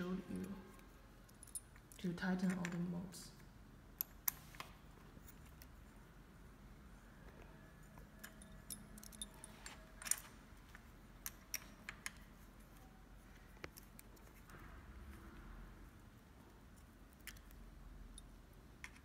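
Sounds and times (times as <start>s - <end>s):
allen key clicking on metal bolts: 8.0s - 10.3s.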